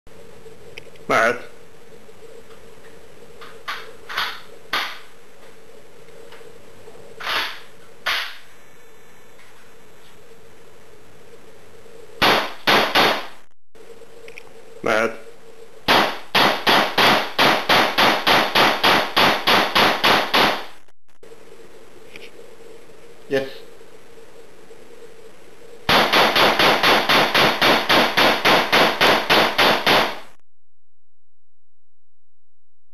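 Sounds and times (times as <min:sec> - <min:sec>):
rapid gunfire of blanks: 0:12.2 - 0:13.4, 0:15.9 - 0:20.8, 0:25.9 - 0:30.4.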